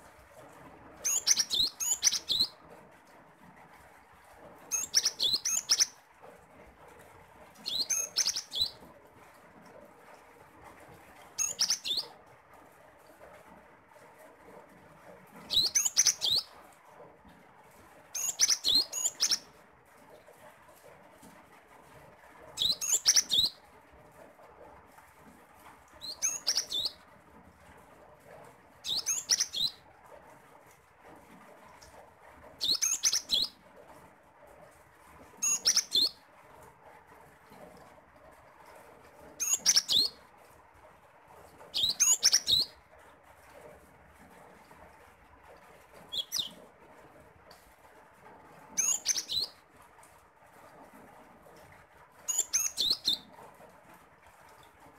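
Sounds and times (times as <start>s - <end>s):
bird whistling song: 1.0s - 2.6s, 4.7s - 6.0s, 7.6s - 8.8s, 11.4s - 12.1s, 15.5s - 16.5s, 18.2s - 19.4s, 22.6s - 23.6s, 26.0s - 27.0s, 28.8s - 29.8s, 32.6s - 33.6s, 35.4s - 36.2s, 39.4s - 40.2s, 41.8s - 42.7s, 46.1s - 46.6s, 48.8s - 49.6s, 52.3s - 53.3s.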